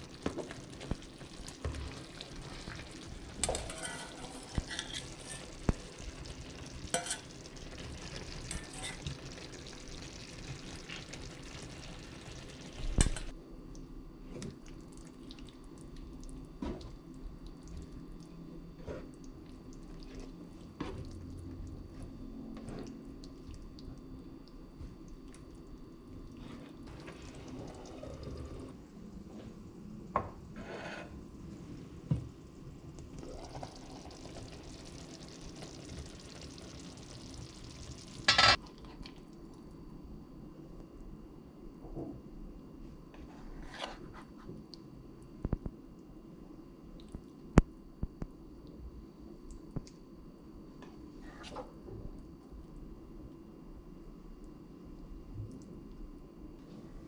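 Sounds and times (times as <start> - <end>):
food sizzling in a frying pan: 0.0 - 13.3, 33.2 - 38.6
spatula scraping a pan: 3.4 - 5.8, 6.9 - 7.4, 8.5 - 9.1, 30.6 - 31.2.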